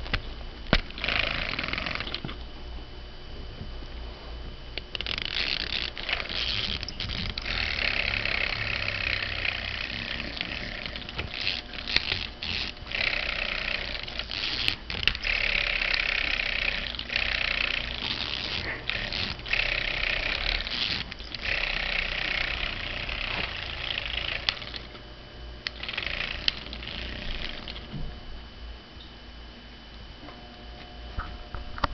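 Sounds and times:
toy motor buzzing: 0.0s - 2.4s, 4.8s - 25.0s, 25.6s - 28.0s.

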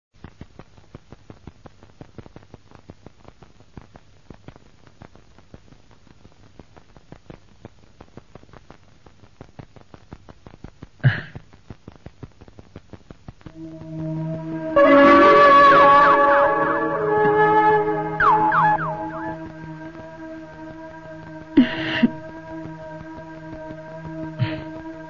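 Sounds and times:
film soundtrack crackle: 0.2s - 25.0s
low hum: 13.5s - 25.0s.

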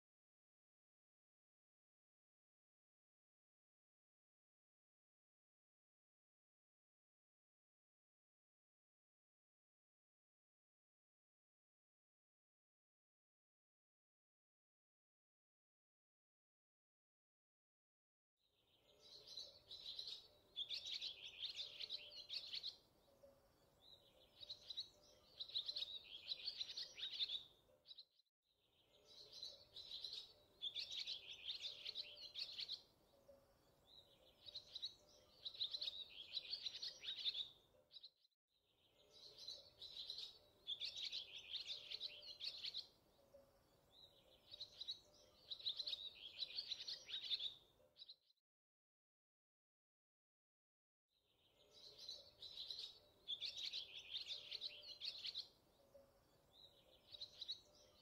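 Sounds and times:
birds chirping and trilling: 18.6s - 48.3s, 51.3s - 58.0s.

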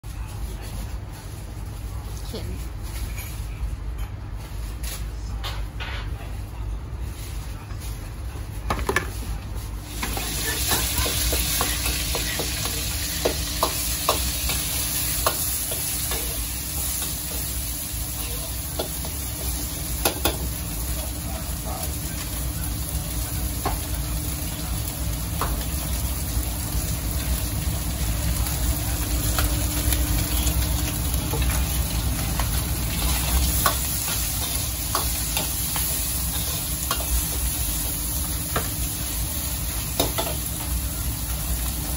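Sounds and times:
food sizzling in wok: 9.8s - 41.9s.

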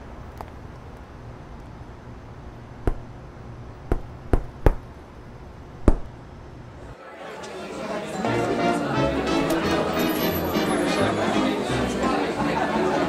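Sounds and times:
low steady hum: 0.0s - 7.0s.

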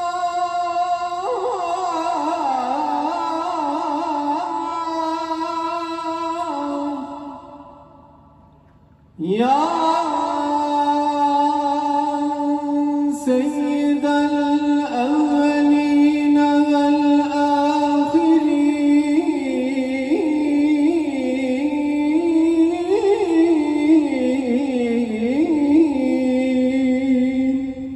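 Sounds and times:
man chanting over loudspeaker: 0.0s - 8.3s, 9.2s - 27.9s.

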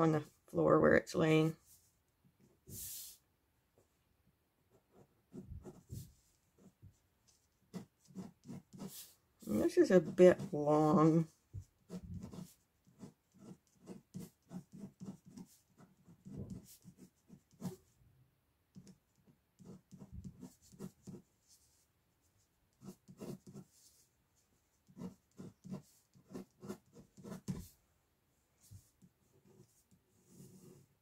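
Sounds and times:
pen scratching on paper: 4.7s - 18.0s, 18.7s - 21.9s, 22.7s - 24.1s, 24.8s - 27.8s, 28.6s - 31.0s.

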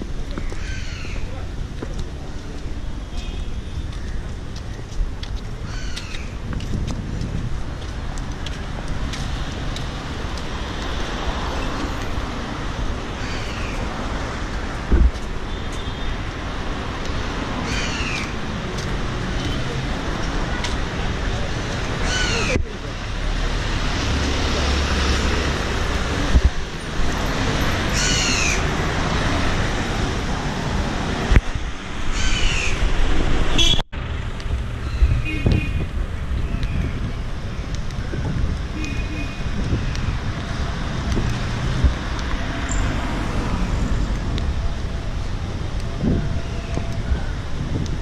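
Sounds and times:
roadway traffic noise: 0.0s - 48.0s
crow cawing: 0.6s - 1.3s, 5.6s - 6.3s, 13.2s - 13.8s, 17.6s - 18.3s, 22.0s - 22.6s, 28.0s - 28.6s, 32.1s - 32.8s.

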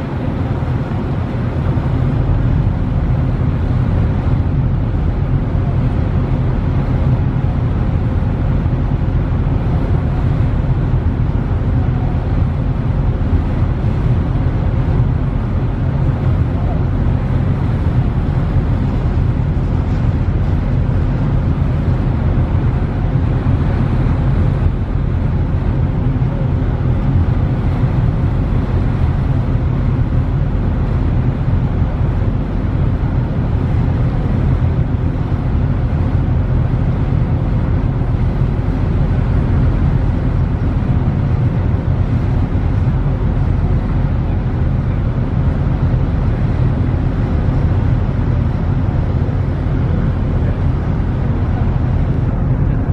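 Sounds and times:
ferry diesel engines droning: 0.0s - 52.9s
rush of wind and water: 0.0s - 52.9s.

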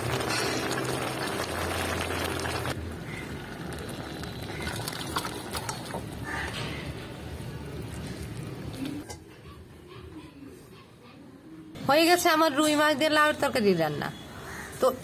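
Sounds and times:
curry bubbling in pan: 0.0s - 6.4s.

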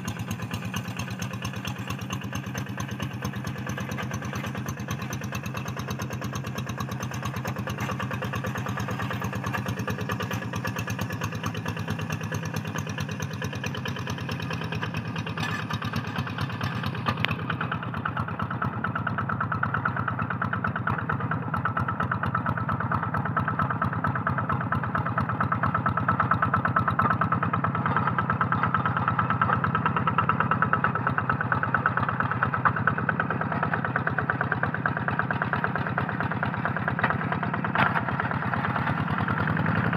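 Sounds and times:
diesel engine chugging: 0.0s - 39.9s.

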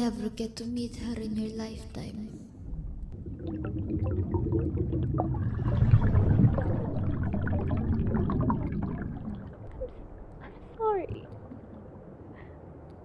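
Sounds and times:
low rumble: 2.5s - 13.0s
liquid bubbling and gurgling: 2.6s - 13.0s.

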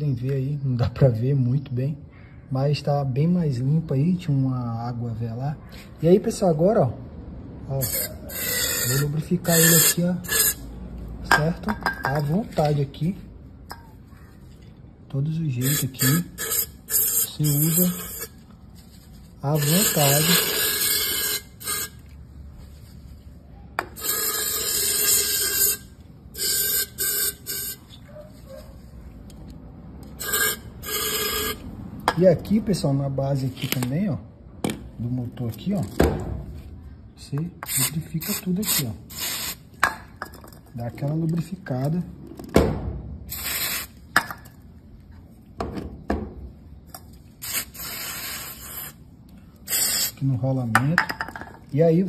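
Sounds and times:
aerosol can spraying: 19.6s - 22.0s, 24.0s - 27.8s, 43.3s - 44.0s, 47.4s - 49.0s, 49.7s - 50.2s
aerosol spray hissing: 47.4s - 49.0s.

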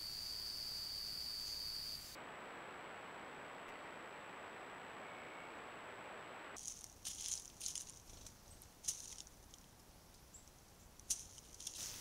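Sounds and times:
rustling of dry leaf litter: 6.6s - 9.8s, 11.0s - 12.0s
steady hiss: 11.0s - 12.0s.

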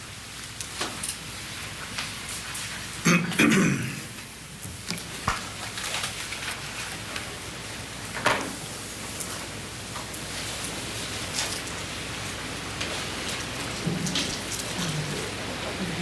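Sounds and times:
person clearing throat: 3.0s - 4.2s
papers being handled: 4.7s - 7.5s.

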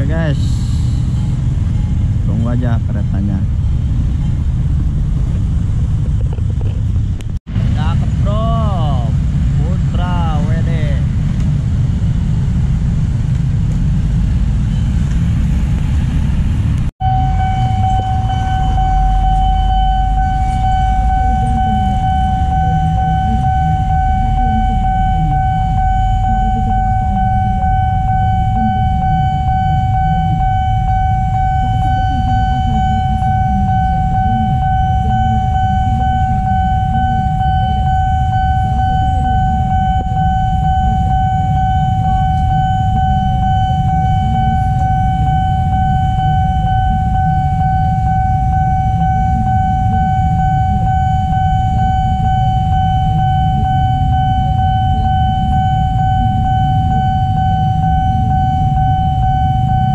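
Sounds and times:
motorcycles idling: 0.0s - 59.8s
level-crossing alarm tone: 17.0s - 59.9s.

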